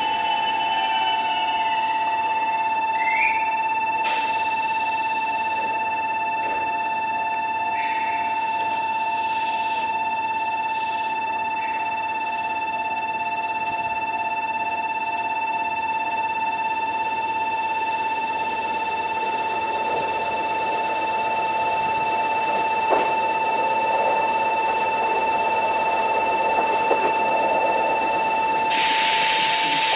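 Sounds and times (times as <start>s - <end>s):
level crossing warning bell ringing: 0.0s - 29.9s
train rumbling: 18.4s - 29.9s.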